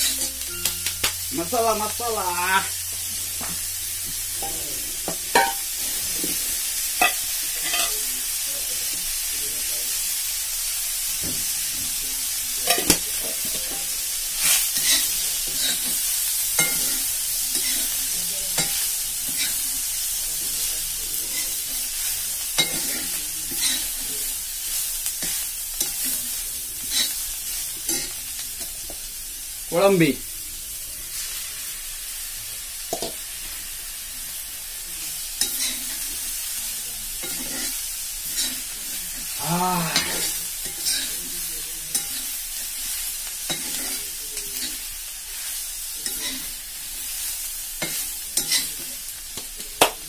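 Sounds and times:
metal spatula scraping wok: 0.0 - 0.4
onions sizzling in oil: 0.0 - 50.0.

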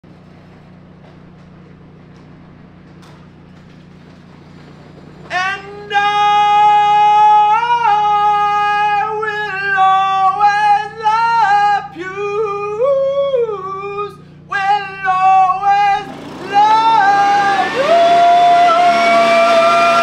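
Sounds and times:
man singing in falsetto: 5.3 - 20.0.

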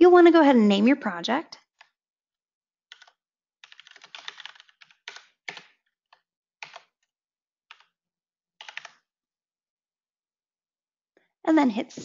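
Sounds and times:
keyboard typing: 2.9 - 7.0, 7.7 - 8.0, 8.6 - 9.0.

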